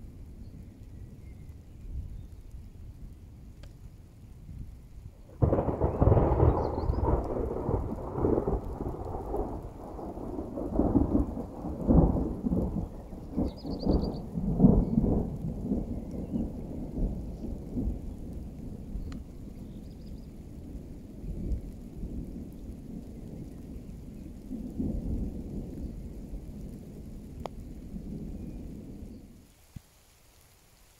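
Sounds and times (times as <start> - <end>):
thunder crack and rumble: 5.2 - 29.2.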